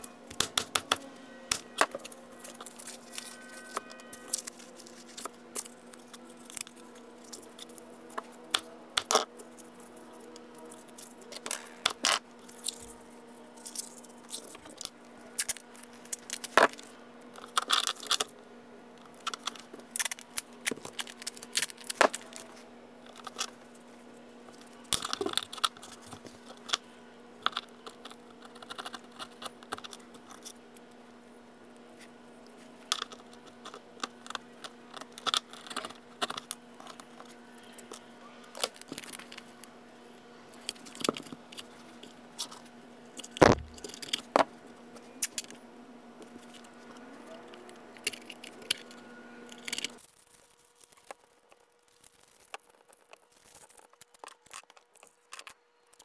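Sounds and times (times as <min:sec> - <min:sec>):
metal parts clicking and scraping: 0:47.9 - 0:56.0.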